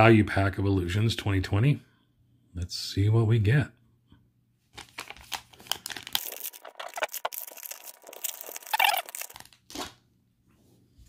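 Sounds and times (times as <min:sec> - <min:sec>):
foil wrapper tearing and crinkling: 0:04.8 - 0:10.0.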